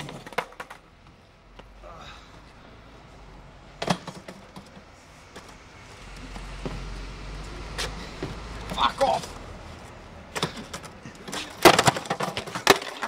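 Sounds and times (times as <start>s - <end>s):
skateboard clacking on ground: 0.0s - 1.6s, 3.8s - 5.6s, 10.3s - 13.0s.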